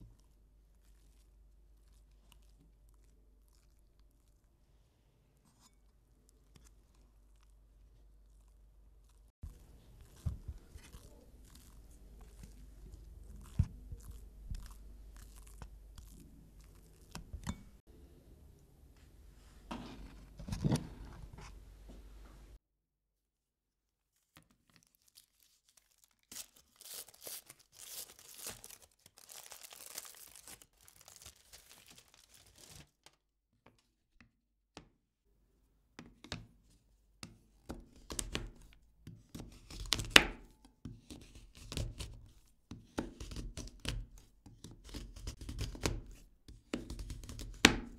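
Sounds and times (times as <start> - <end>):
wrapper tearing and crinkling: 24.8 - 33.2
knife chopping chocolate on board: 42.7 - 47.9.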